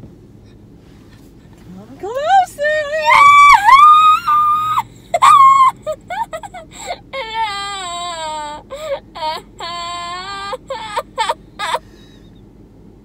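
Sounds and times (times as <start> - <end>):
girl squealing with laughter: 3.0 - 8.6, 9.2 - 11.8.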